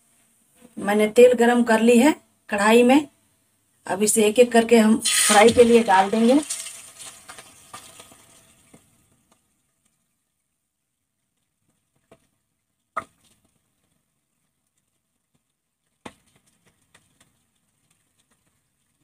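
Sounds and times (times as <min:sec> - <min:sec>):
oil crackling and hissing: 0:05.0 - 0:09.0.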